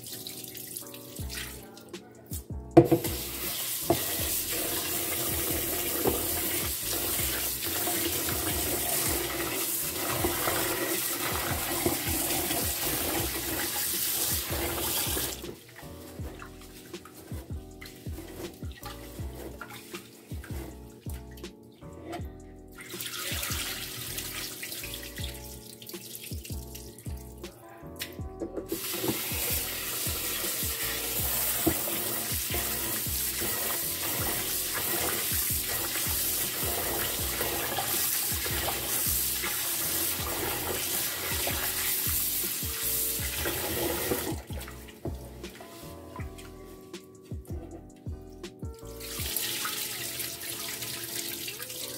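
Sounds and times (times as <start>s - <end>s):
tap pouring water: 2.8s - 21.6s, 22.8s - 27.2s, 28.6s - 46.5s, 49.0s - 51.9s
hands swishing rice in water: 3.1s - 20.8s, 22.8s - 25.0s.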